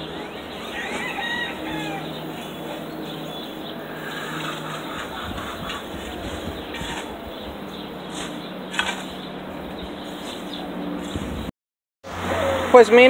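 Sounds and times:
chickens calling: 0.0s - 11.5s
steady low hum: 0.0s - 11.5s
rooster crow: 0.5s - 2.7s.

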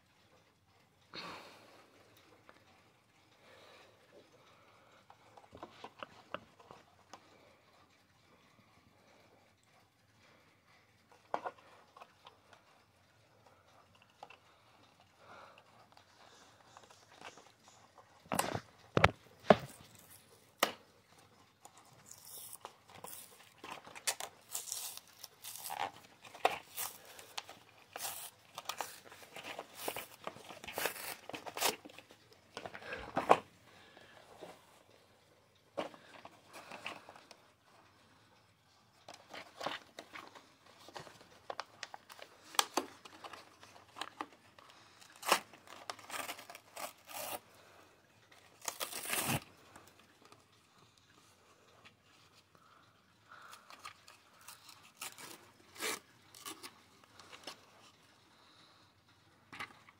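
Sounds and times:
plastic blister pack tearing: 22.0s - 32.1s, 45.0s - 47.4s, 48.5s - 49.5s, 54.0s - 57.3s.

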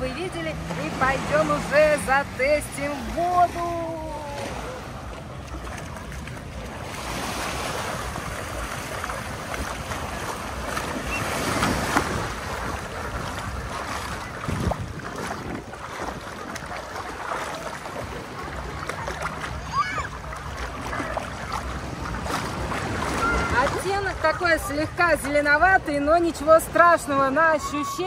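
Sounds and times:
legs splashing through water: 0.0s - 28.0s
small surf washing: 0.0s - 28.0s
wind on microphone: 5.7s - 19.8s.

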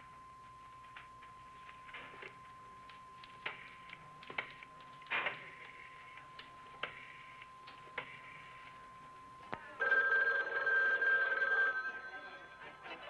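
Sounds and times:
telephone bell ringing: 9.8s - 13.0s.

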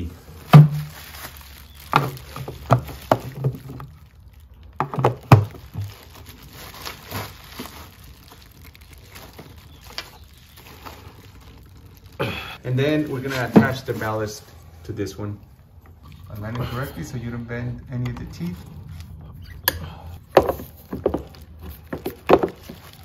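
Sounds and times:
plastic bulb cover twisting: 1.6s - 4.0s.

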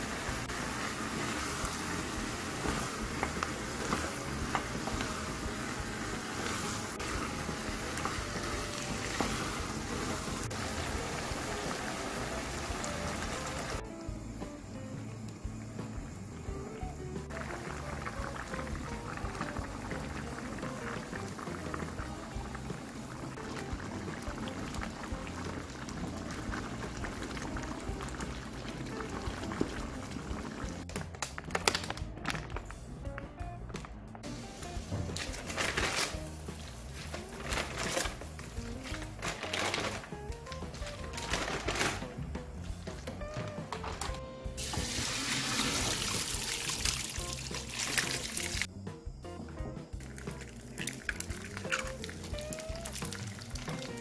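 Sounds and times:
food sizzling in a frying pan: 0.0s - 13.8s, 16.8s - 30.8s, 44.6s - 48.7s, 50.1s - 54.0s
wooden spatula stirring: 0.9s - 11.2s.

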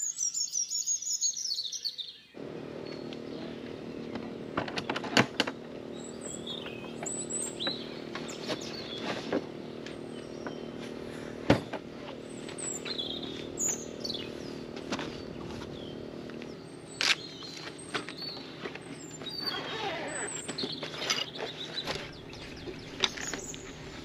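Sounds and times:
small birds chirping: 0.0s - 24.0s
low mechanical hum: 2.4s - 24.0s
sharp clicks and knocks: 4.1s - 5.7s.

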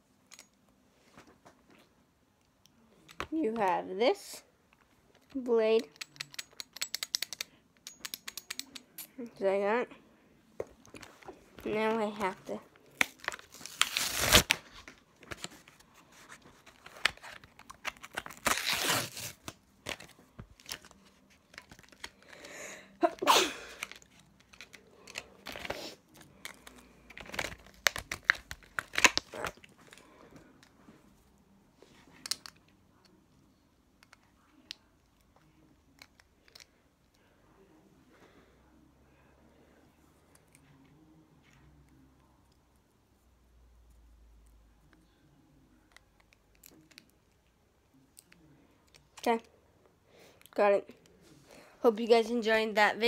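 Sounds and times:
plastic packaging tearing: 12.9s - 14.9s, 16.8s - 22.1s, 27.1s - 29.7s.

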